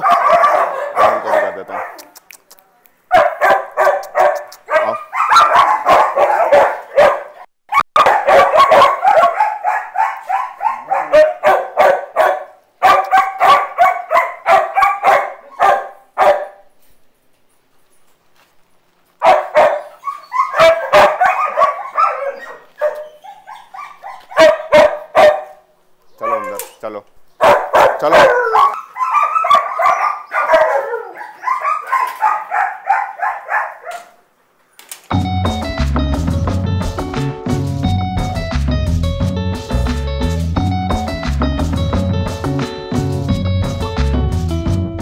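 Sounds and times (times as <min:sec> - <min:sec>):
dogs barking: 0:00.0 - 0:02.1, 0:03.1 - 0:16.7, 0:19.2 - 0:26.8, 0:27.4 - 0:34.3.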